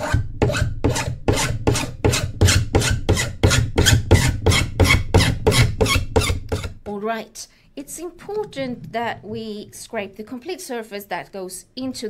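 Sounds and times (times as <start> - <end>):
scraper rasping along plastic pipe: 0.0 - 6.8.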